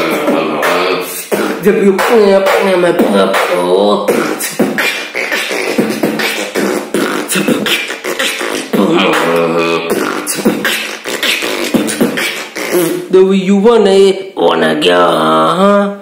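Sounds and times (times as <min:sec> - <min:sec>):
man beatboxing: 0:00.0 - 0:16.0
man singing short phrases: 0:00.0 - 0:16.0.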